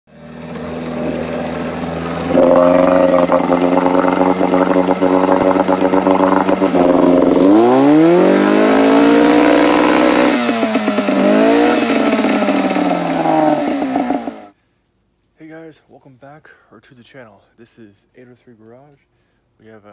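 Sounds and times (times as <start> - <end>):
outboard motor running and revving: 0.1 - 14.5.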